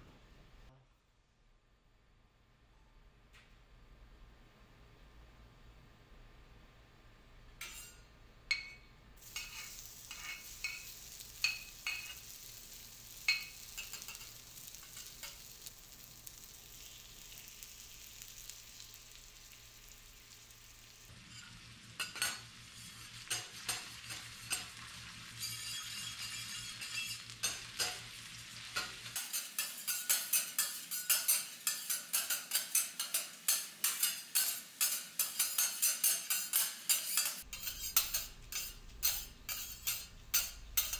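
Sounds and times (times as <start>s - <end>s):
metal spatulas clinking: 7.6s - 12.4s, 13.3s - 15.5s, 25.4s - 28.0s, 28.8s - 40.9s
steak sizzling on a griddle: 9.2s - 40.9s
spatulas tapping a plate: 28.7s - 40.9s.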